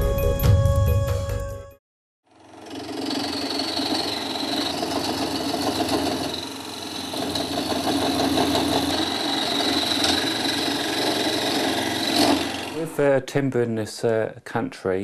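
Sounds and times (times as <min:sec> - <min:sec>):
wood lathe hum and whine: 0:02.3 - 0:12.8
gouge scraping wood: 0:02.8 - 0:12.8.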